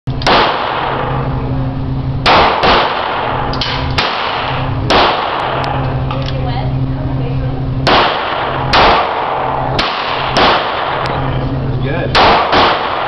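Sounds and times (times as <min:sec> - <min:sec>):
steady low hum: 0:00.1 - 0:13.0
handgun shots: 0:00.2 - 0:01.1, 0:02.2 - 0:05.8, 0:07.8 - 0:11.2, 0:12.1 - 0:13.0.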